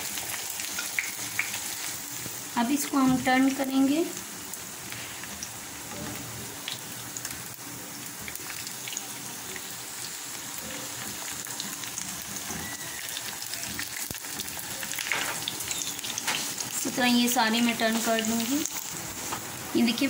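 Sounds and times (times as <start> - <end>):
oil sizzling and crackling: 0.0 - 20.0.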